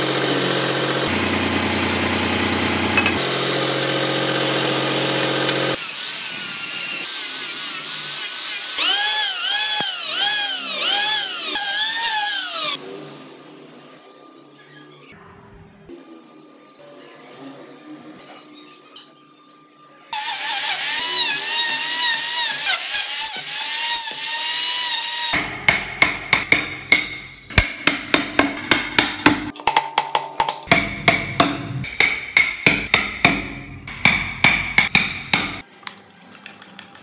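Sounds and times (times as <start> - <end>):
power tool boring into wood: 3.2 - 12.8, 20.2 - 25.4.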